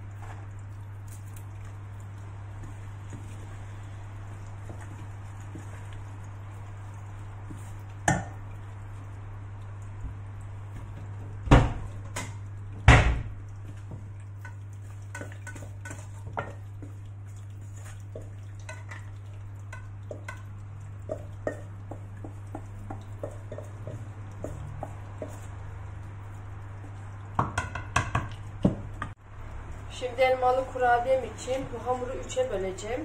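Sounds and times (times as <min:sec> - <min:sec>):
wooden spatula scraping pot: 0:13.7 - 0:27.0
steel pot knocking on counter: 0:27.4 - 0:29.1.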